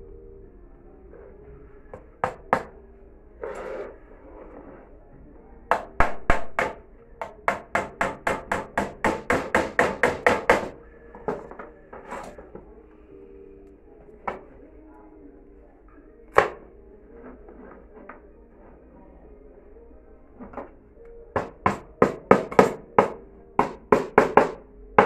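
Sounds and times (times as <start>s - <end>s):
hammer driving nails into plywood: 7.5s - 10.7s.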